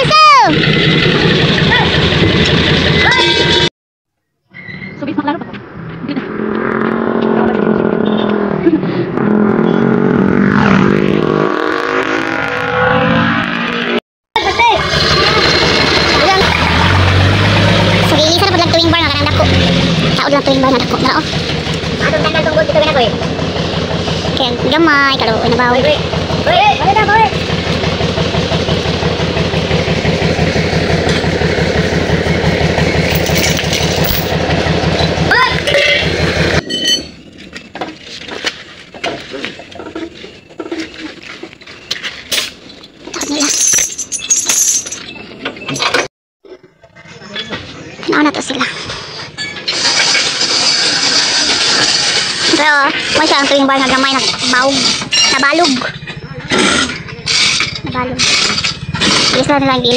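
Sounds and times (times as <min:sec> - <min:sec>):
vehicle engine running: 0:00.0 - 0:03.7, 0:05.2 - 0:36.6, 0:51.1 - 0:59.9.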